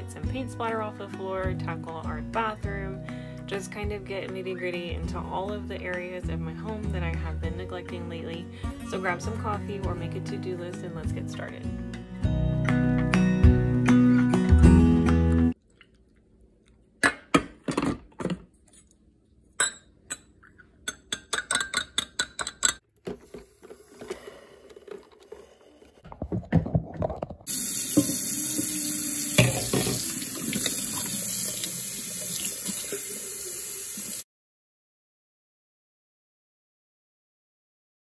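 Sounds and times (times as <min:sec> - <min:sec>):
water running: 0:27.0 - 0:34.2.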